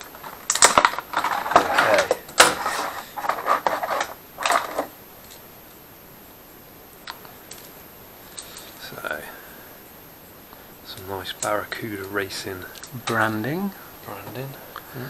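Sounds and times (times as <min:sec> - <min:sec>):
packaging rustling: 0:00.0 - 0:05.0
small metal parts clicking: 0:00.0 - 0:05.4, 0:07.0 - 0:08.8, 0:10.9 - 0:13.5.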